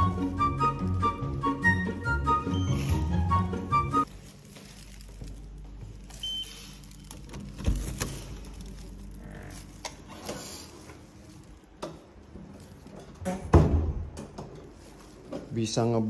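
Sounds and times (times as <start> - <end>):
door thudding open: 13.3 - 14.2.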